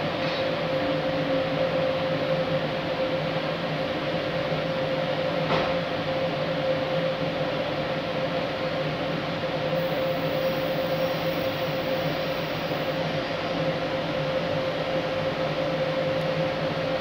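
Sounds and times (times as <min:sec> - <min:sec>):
electric locomotive humming: 0:06.0 - 0:17.0.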